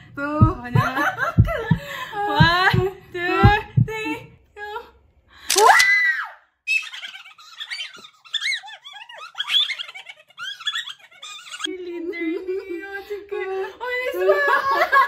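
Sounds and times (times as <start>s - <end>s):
women squealing with excitement: 5.6s - 6.4s.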